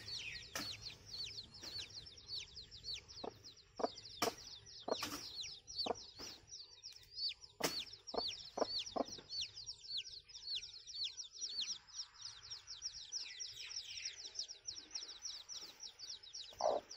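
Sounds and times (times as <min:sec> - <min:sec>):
chick peeping: 0:00.0 - 0:16.9
sharp knocks: 0:04.2 - 0:06.4.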